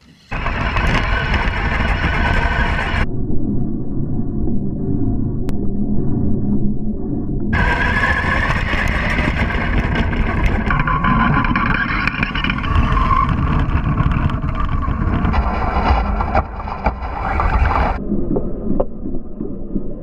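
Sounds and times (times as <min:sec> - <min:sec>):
electric motor whine: 0:00.3 - 0:03.0, 0:07.6 - 0:18.0
wheels rumbling over grass: 0:00.3 - 0:03.0, 0:07.6 - 0:18.0.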